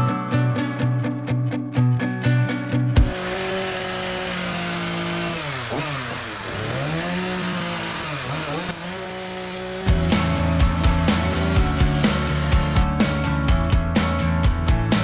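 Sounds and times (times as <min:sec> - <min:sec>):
chainsaw cutting wood: 0:03.0 - 0:13.6.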